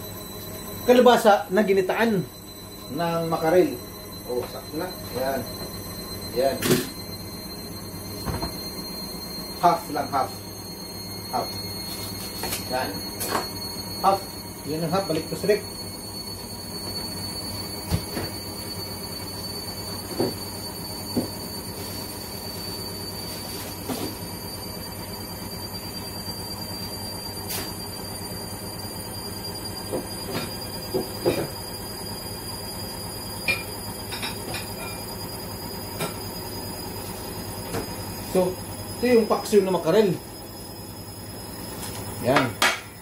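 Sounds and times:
high whine: 0.0s - 43.0s
mechanical hum: 0.0s - 43.0s.

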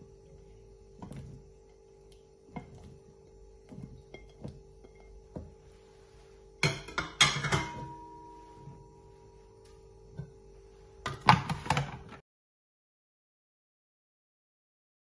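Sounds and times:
dishware clatter: 6.6s - 8.6s.

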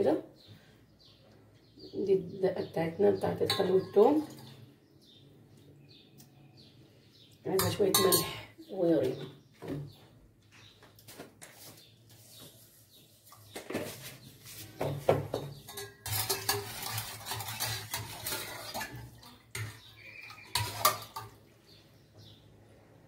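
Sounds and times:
metal spoon clinking in pot: 3.4s - 4.5s, 7.6s - 8.5s, 15.4s - 19.0s, 19.6s - 21.4s.

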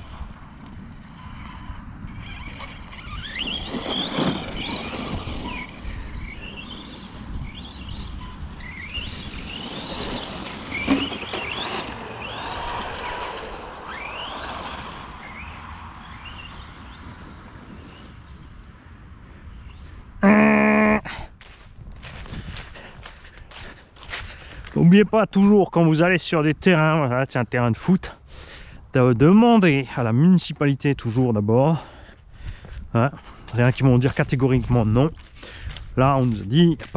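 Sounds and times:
electric motor whining: 1.0s - 17.8s.

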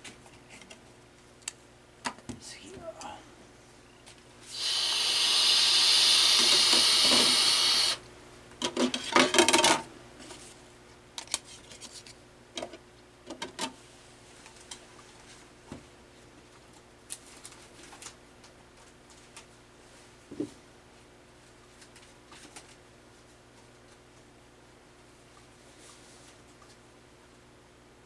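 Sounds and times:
loud steady hiss: 4.4s - 8.1s.

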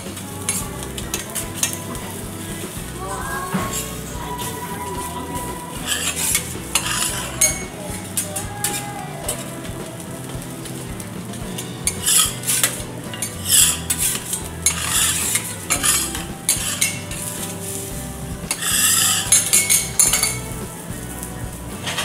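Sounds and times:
food sizzling: 0.0s - 22.0s
metal spatulas scraping on griddle: 5.6s - 21.2s.

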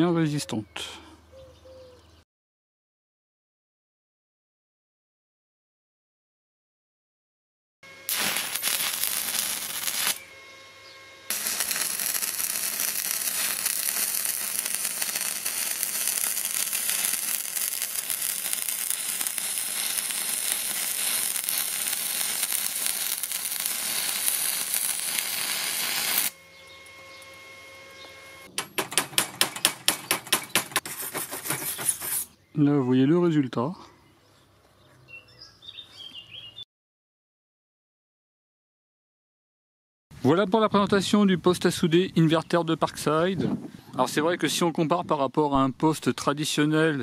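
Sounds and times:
welding arc crackling and hissing: 7.9s - 10.3s, 11.3s - 29.2s.

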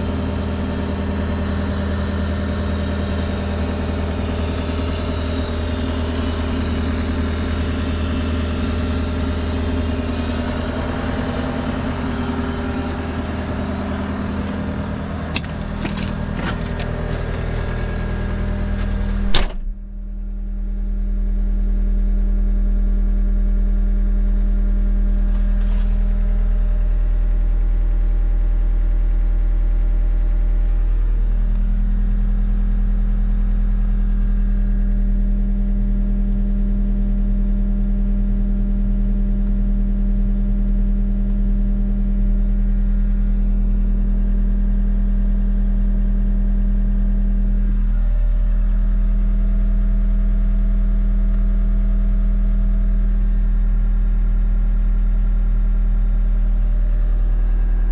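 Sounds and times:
diesel engine idling: 0.0s - 20.7s.

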